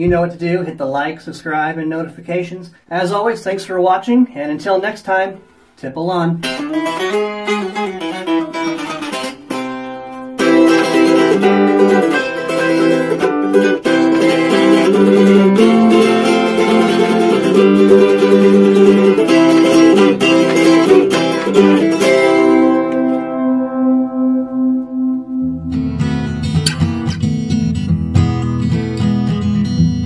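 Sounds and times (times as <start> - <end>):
steel-strung instrument strummed in chords: 6.4 - 30.0.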